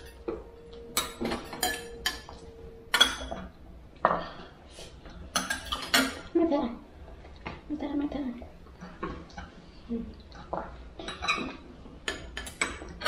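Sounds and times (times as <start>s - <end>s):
cutlery clinking against plates: 1.0s - 4.4s, 5.3s - 6.3s, 11.0s - 13.0s.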